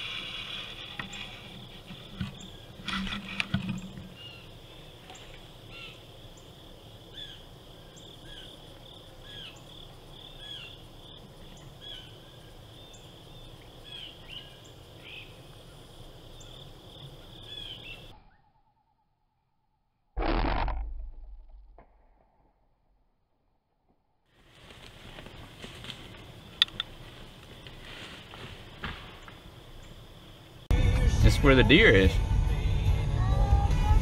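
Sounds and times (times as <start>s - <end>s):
insect chorus buzzing: 0.0s - 18.1s, 24.4s - 30.9s.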